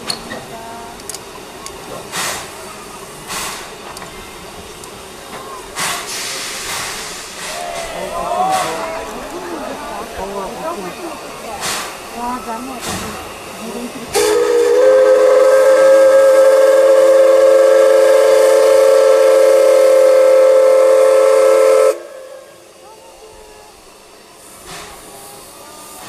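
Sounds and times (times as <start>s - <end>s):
chime steam whistle blast: 14.2s - 22.6s.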